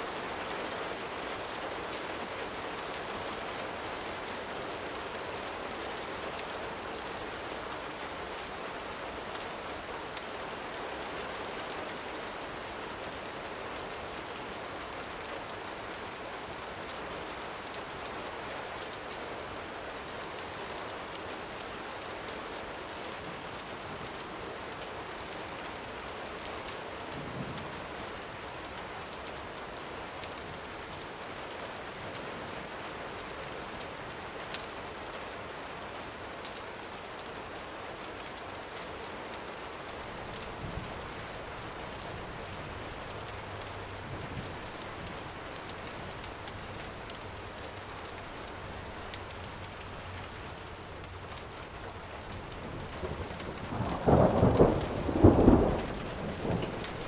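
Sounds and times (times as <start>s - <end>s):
gentle rain falling: 0.0s - 57.0s
campfire crackling: 36.4s - 57.0s.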